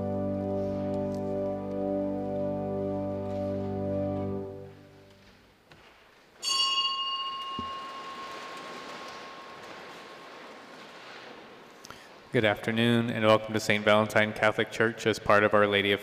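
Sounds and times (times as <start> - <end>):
held organ chord: 0.0 - 5.1
bright ringing strike: 6.4 - 10.2.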